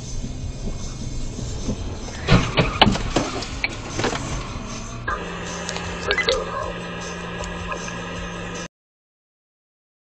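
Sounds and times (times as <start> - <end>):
car crash bangs and crunches: 1.7 - 4.7.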